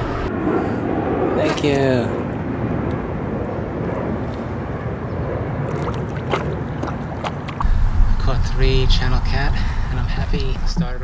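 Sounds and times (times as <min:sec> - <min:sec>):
short sharp splashes: 0:05.7 - 0:07.6
water sloshing by a canoe: 0:05.7 - 0:07.6.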